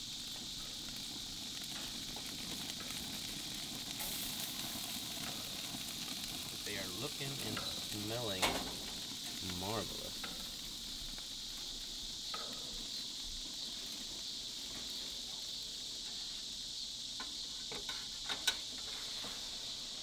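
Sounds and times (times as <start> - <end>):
crickets chirring: 0.0 - 20.0
metal tongs clicking on grill tray: 7.5 - 8.9.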